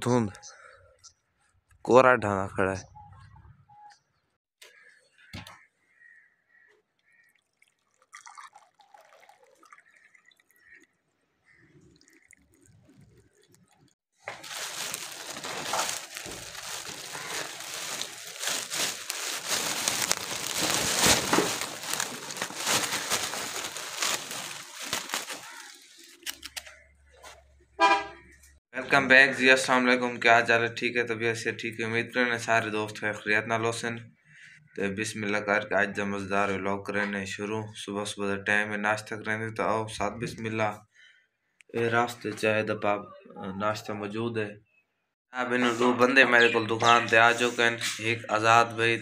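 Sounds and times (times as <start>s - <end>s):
plastic bag crinkling: 12.6s - 26.6s.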